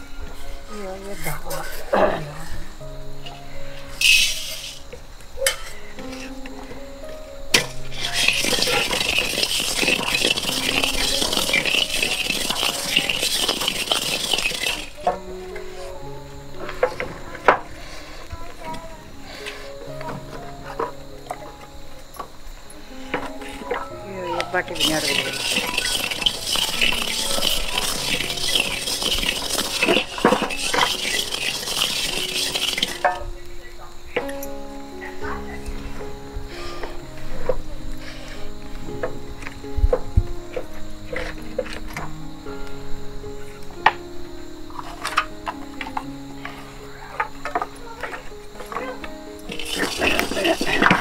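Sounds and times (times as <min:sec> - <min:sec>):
music: 0:00.0 - 0:51.0
rice crackling in a wok: 0:07.6 - 0:15.1, 0:24.7 - 0:33.3, 0:49.4 - 0:51.0
ladle scraping a wok: 0:07.6 - 0:15.2, 0:24.6 - 0:33.2, 0:49.5 - 0:51.0.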